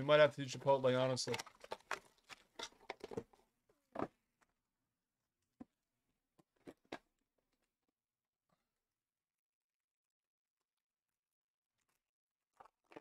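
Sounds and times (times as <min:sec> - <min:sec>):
card packs clicking and rustling: 0:00.6 - 0:03.4.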